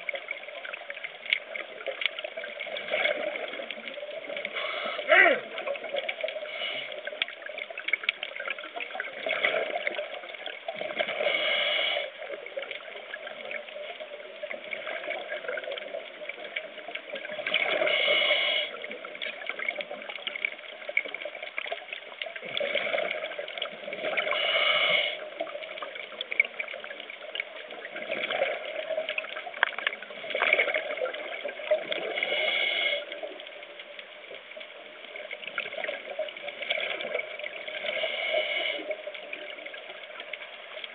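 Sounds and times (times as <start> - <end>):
hissing regulator inhales: 4.5 - 5.1, 6.5 - 7.0, 11.2 - 12.2, 17.8 - 18.8, 24.3 - 25.2, 32.1 - 33.2, 37.8 - 38.9.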